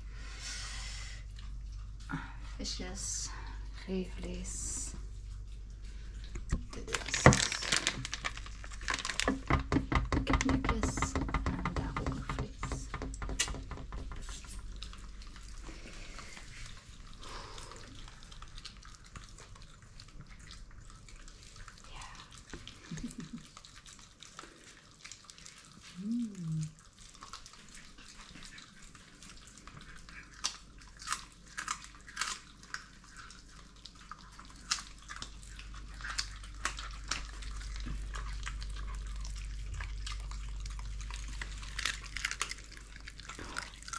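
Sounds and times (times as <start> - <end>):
dogs chewing with crunches: 1.0 - 43.9
plastic bag crinkling: 6.6 - 9.8, 36.0 - 43.9.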